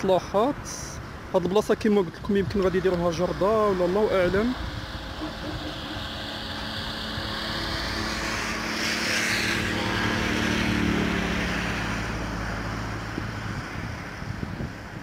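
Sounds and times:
car driving past: 4.7s - 14.3s.

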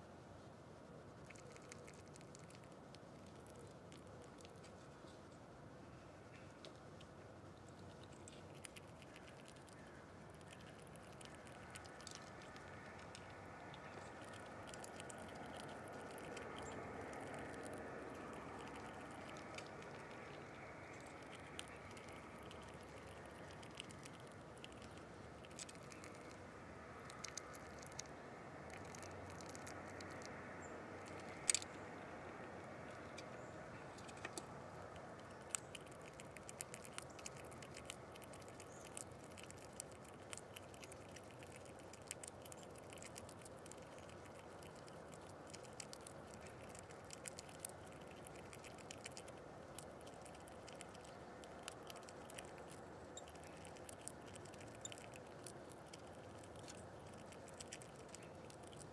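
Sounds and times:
faint steady hiss: 0.0s - 58.9s
animal tapping on nuts: 10.4s - 26.4s, 28.7s - 33.3s.

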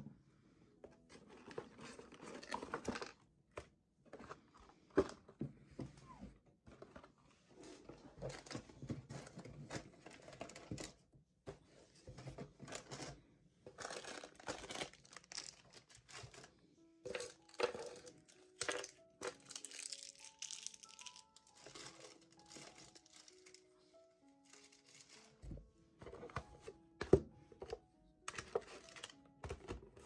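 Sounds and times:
soft background music: 0.0s - 30.0s
plastic packaging crinkling: 13.8s - 16.5s, 17.1s - 23.8s, 24.4s - 25.4s, 28.3s - 29.2s.

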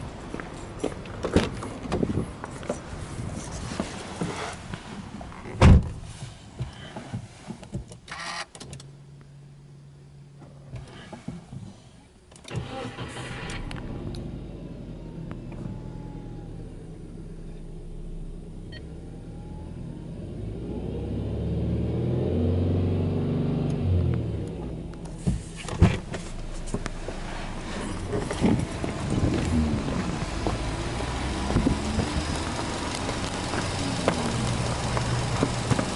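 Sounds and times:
car engine starting and idling: 8.0s - 35.9s.

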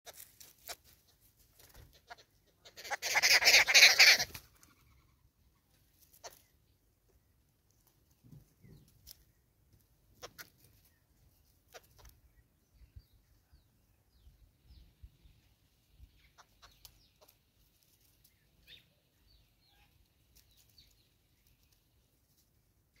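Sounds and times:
faint clicks and chirps: 16.2s - 18.8s, 19.8s - 22.4s.

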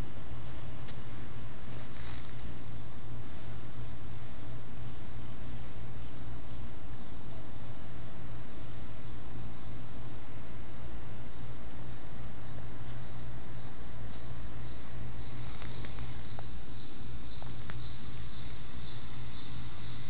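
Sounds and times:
insects chirping: 0.0s - 20.0s
low steady rumble: 0.0s - 20.0s.

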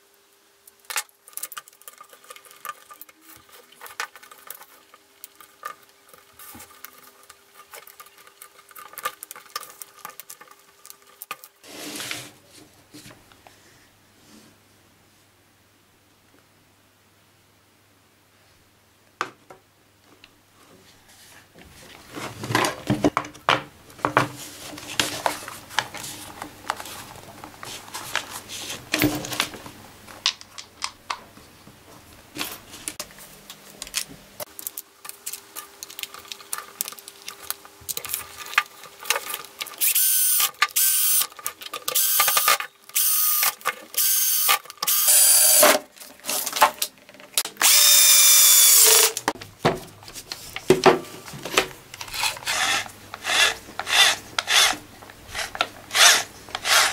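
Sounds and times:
electric drill motor whine: 39.8s - 41.2s, 42.0s - 45.7s, 47.6s - 49.2s.

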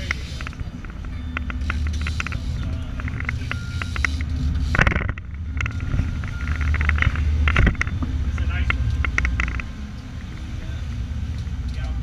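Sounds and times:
boat engine running: 0.0s - 12.0s.

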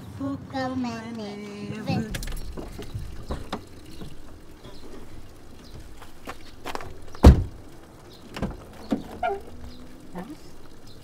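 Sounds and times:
footsteps: 1.2s - 9.6s
car door shutting: 1.7s - 9.6s
light clicks and knocks: 1.7s - 11.0s.

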